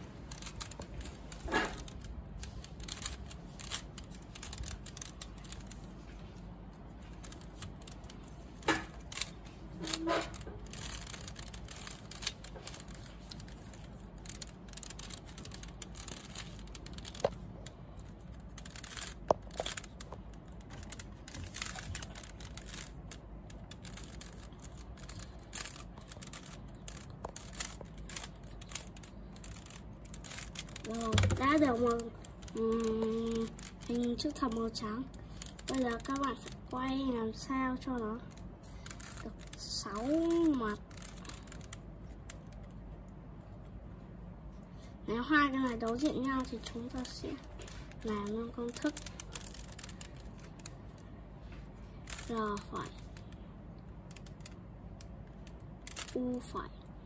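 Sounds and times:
puzzle cube clicking and clacking: 0.1 - 43.2, 45.6 - 51.1, 51.7 - 56.6.

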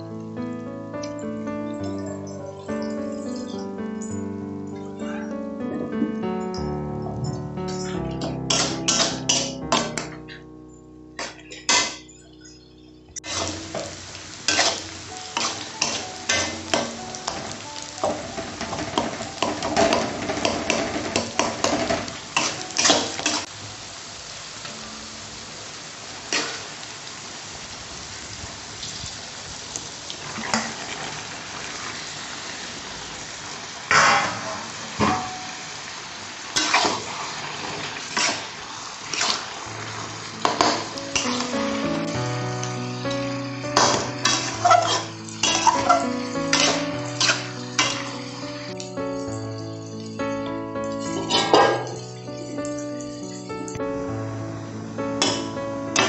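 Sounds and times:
curry sizzling: 0.0 - 56.0
metal spatula scraping a pan: 11.2 - 12.2, 13.2 - 23.5, 36.6 - 39.6, 43.7 - 48.7.

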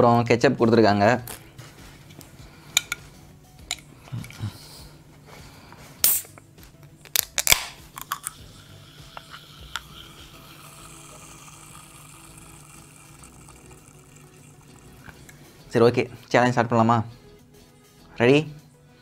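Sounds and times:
can pull tab clicking: 7.1 - 8.4.

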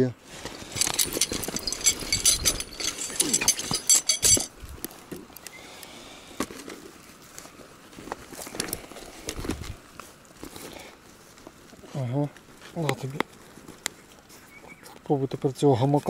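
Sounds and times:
fabric bag rustling: 0.2 - 4.5
light metallic clinks: 0.4 - 4.6.

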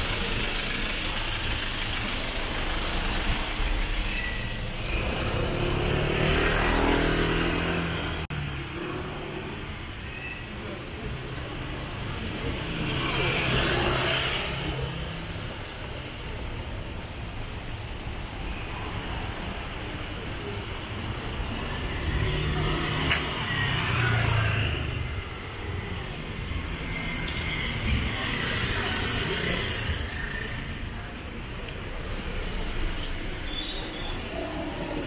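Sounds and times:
cars passing close by: 0.0 - 9.6
traffic engine rumble: 0.0 - 35.0.

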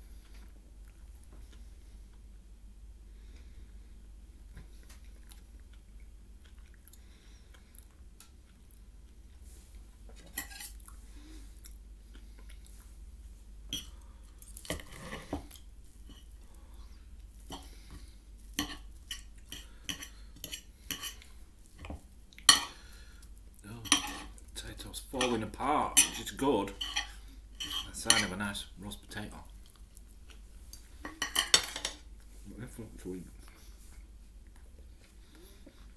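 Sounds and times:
cutlery clinking and scraping on plate: 10.2 - 10.8, 14.7 - 16.3, 18.6 - 21.2, 22.5 - 22.8, 23.8 - 24.4, 25.2 - 28.4, 31.0 - 32.0.

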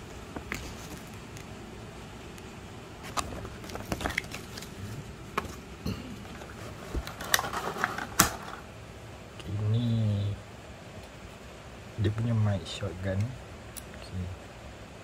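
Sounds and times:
plastic packaging clicks and crinkles: 3.0 - 4.8, 6.2 - 8.6.

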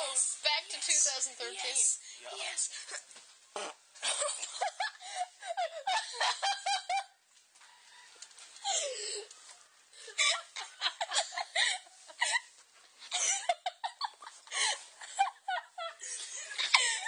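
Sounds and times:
people laughing and giggling: 4.0 - 7.2, 10.0 - 17.0.

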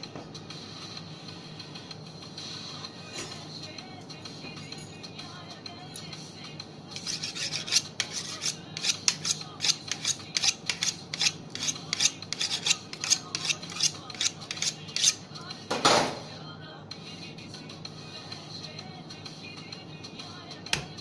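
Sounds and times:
knife scraping on sharpening steel: 6.9 - 15.3.

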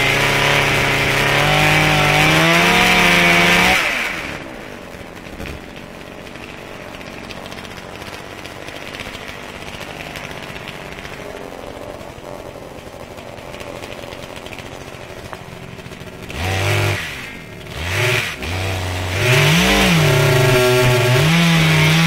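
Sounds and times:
chainsaw cutting tree: 0.0 - 22.0
chainsaw idling: 0.0 - 22.0.

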